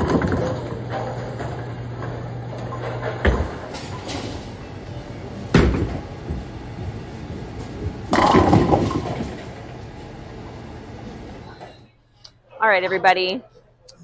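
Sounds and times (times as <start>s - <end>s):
bowling ball thud and rolling: 0.0s - 4.6s, 5.4s - 10.0s
bowling pins crashing: 0.0s - 4.6s, 5.4s - 9.8s
bowling alley background noise: 0.0s - 14.0s.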